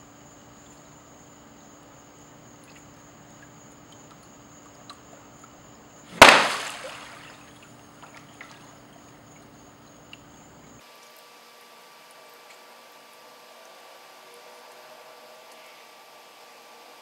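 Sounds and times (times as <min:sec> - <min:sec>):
faint drips: 0:02.3 - 0:10.8
loud splash in water: 0:06.1 - 0:08.6.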